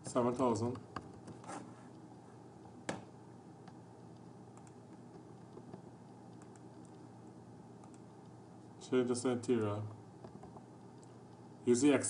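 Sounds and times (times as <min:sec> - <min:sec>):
low room hiss: 0:00.0 - 0:12.0
faint keyboard ticks: 0:03.7 - 0:07.1.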